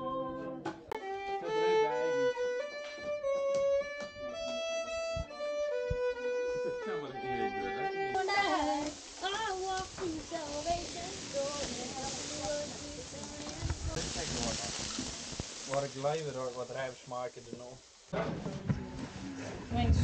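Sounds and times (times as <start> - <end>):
solo violin melody: 0.9 - 14.6
steady hiss: 1.0 - 20.0
voices: 6.6 - 20.0.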